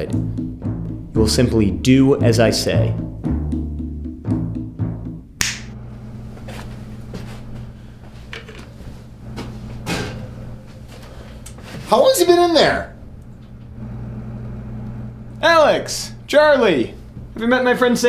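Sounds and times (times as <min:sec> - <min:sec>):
low drum-like film music: 0:00.0 - 0:05.4
steady low hum: 0:05.2 - 0:17.4
finger snap: 0:05.4 - 0:05.8.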